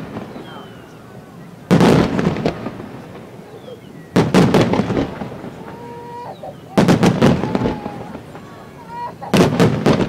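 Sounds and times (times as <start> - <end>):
firework shells bursting: 4.2 - 6.1, 6.7 - 10.0.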